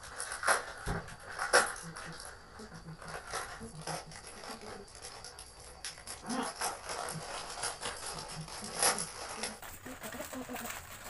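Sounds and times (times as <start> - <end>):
plastic chip packets crinkling: 0.0 - 11.0.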